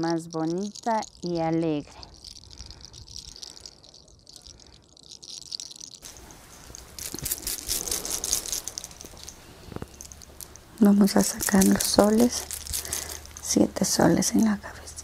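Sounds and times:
hands rustling through hair: 6.0s - 14.6s.

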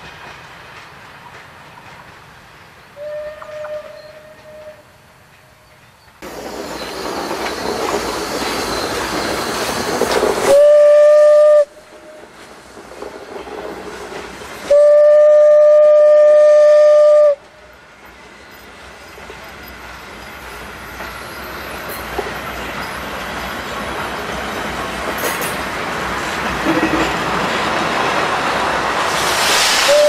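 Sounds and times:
train coaches rumbling past: 0.0s - 30.0s
steam locomotive whistle: 3.0s - 5.0s, 10.4s - 12.3s, 14.7s - 17.5s, 29.7s - 30.0s
steam exhaust and running gear: 6.2s - 25.2s, 28.9s - 30.0s.

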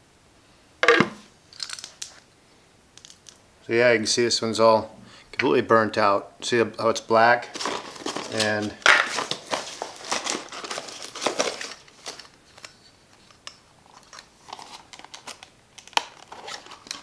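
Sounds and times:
plastic packaging crinkling: 7.4s - 17.0s.

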